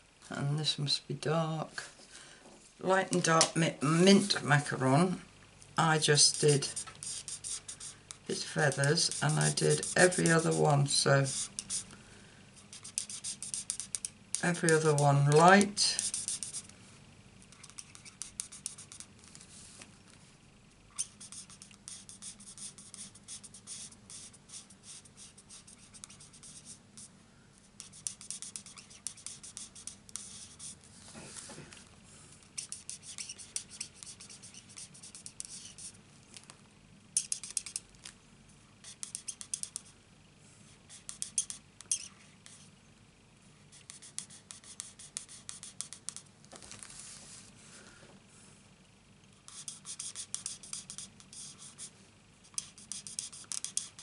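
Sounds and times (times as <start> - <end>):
marker scratching on cardstock: 6.0 - 11.8, 12.6 - 16.7, 17.5 - 19.2, 20.9 - 27.1, 27.8 - 30.8, 32.6 - 36.0, 37.2 - 37.8, 38.8 - 40.0, 40.8 - 42.7, 43.7 - 46.3, 49.5 - 54.0.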